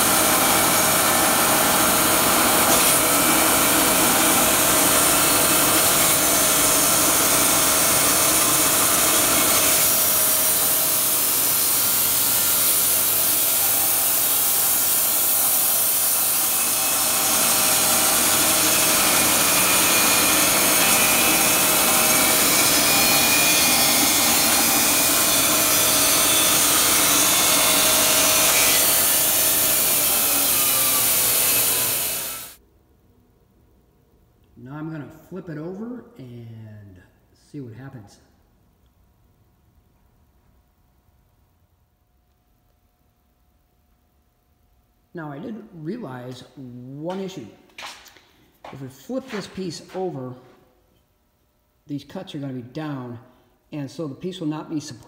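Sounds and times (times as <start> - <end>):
band sawmill sawing log: 0.0 - 32.6.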